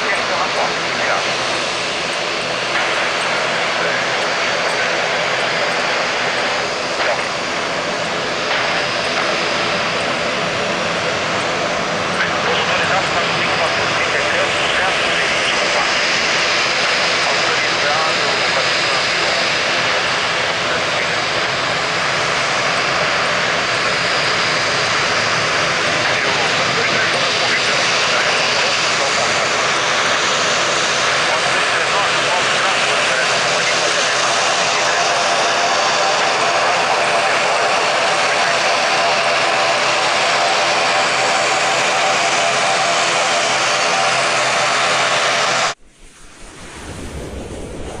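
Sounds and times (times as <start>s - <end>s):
jet engines climbing out: 0.0s - 48.0s
low rumble: 45.7s - 48.0s
rising whoosh: 45.8s - 48.0s.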